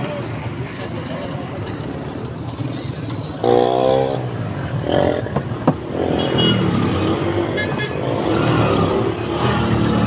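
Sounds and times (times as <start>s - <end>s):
vehicle engines passing: 0.0s - 10.0s.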